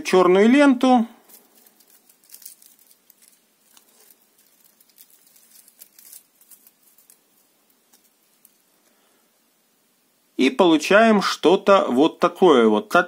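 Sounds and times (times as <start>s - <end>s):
tape peeling off crackling: 1.2s - 8.7s.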